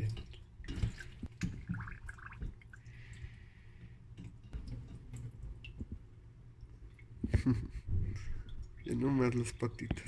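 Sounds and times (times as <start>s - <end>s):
small water splashes: 0.0s - 3.4s
water sloshing and dripping: 0.0s - 10.0s
water trickle: 0.0s - 10.0s.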